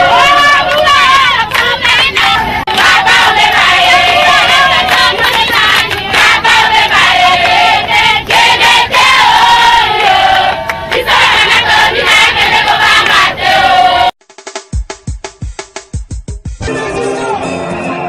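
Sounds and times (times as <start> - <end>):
people shouting: 0.0 - 1.5
crowd singing and chanting: 0.0 - 14.2.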